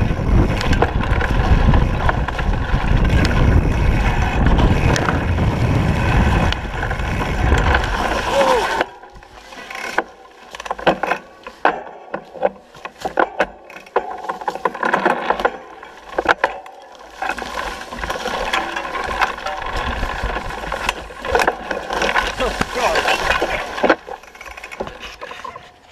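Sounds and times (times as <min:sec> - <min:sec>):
steady rushing ride noise: 0:00.0 - 0:08.8
mountain bike rattling: 0:00.0 - 0:25.9.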